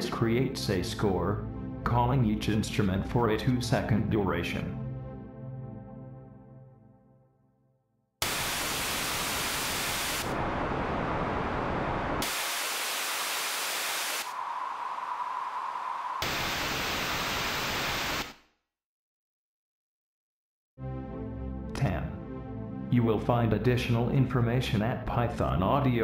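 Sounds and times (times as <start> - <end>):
white noise: 8.2 - 18.4.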